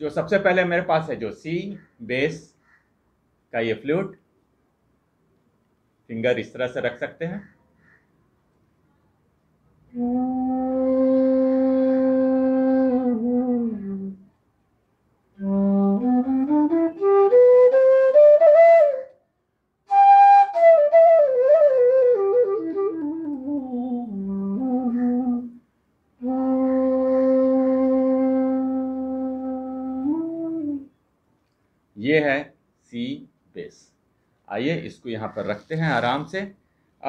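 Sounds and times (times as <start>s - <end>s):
bass bamboo flute playing: 9.9s - 14.3s, 15.4s - 19.2s, 19.9s - 25.6s, 26.2s - 30.9s.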